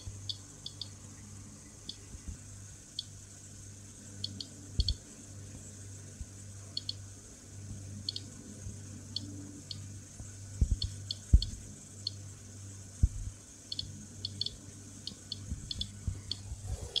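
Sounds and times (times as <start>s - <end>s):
geiger counter beeping: 0.3s - 0.9s
low hum: 12.3s - 17.0s.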